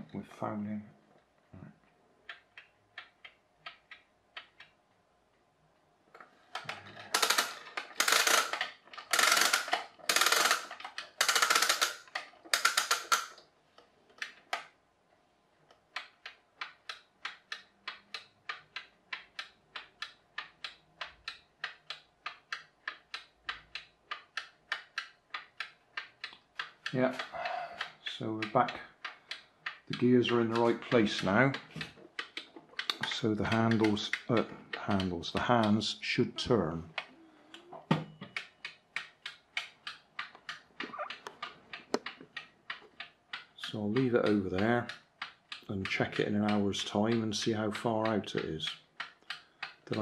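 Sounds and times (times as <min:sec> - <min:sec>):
clock ticking: 0:06.5 - 0:13.4, 0:15.7 - 0:50.0
ratchet clicking: 0:07.1 - 0:13.4.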